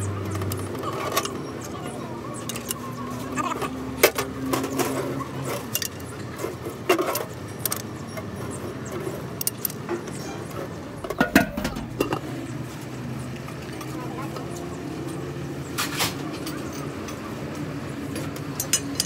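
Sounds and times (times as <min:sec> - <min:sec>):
steel tools clinking on metal: 0:00.3 - 0:02.9, 0:04.2 - 0:06.2, 0:18.5 - 0:19.0.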